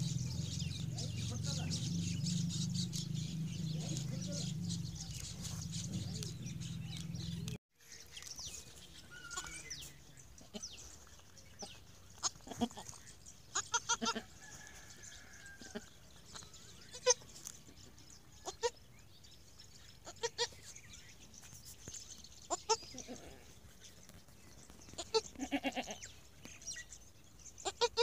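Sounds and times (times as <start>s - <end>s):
small birds chirping: 0.0s - 28.0s
goat kid bleating: 12.2s - 14.3s, 16.9s - 17.2s, 20.0s - 20.6s, 25.0s - 26.1s, 27.6s - 28.0s.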